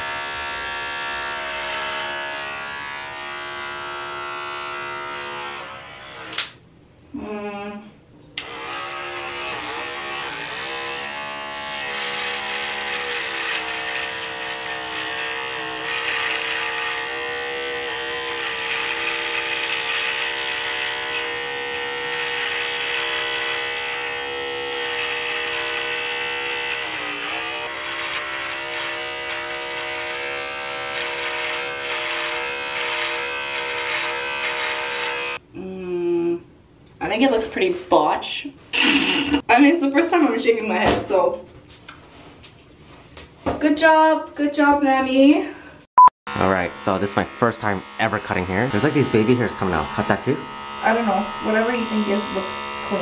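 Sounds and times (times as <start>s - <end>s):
electric hair clippers buzzing: 0.0s - 6.6s, 8.4s - 35.4s, 46.3s - 53.0s.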